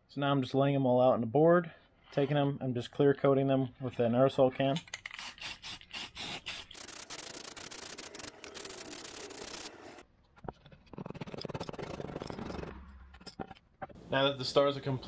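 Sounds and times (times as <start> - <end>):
aerosol can spraying: 5.2 - 10.0.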